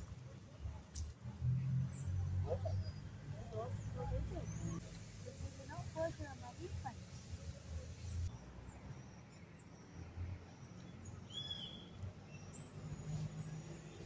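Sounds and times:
bird chirps: 0:08.0 - 0:14.0.

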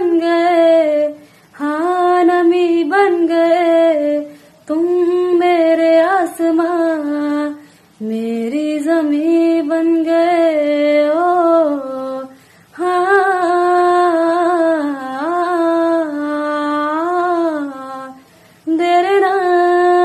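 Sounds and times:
woman singing wordless phrases: 0:00.0 - 0:20.0
singer breathing: 0:01.2 - 0:01.6, 0:07.6 - 0:08.0, 0:12.4 - 0:12.8, 0:18.2 - 0:18.7.

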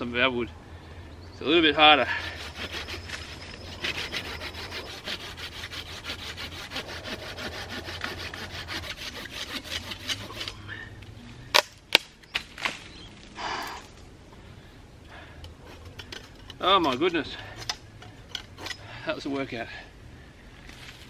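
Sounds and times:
hand saw cutting branch: 0:01.8 - 0:10.7, 0:15.6 - 0:18.9.

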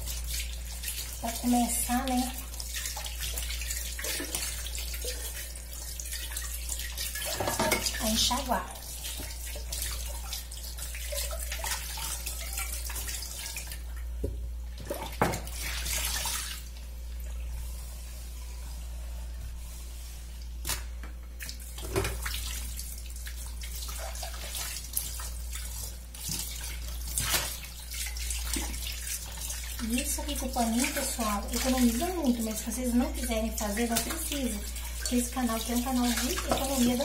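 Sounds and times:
tap water running into sink: 0:00.0 - 0:17.3, 0:20.7 - 0:37.0
pots clanking against sink: 0:07.2 - 0:08.1.

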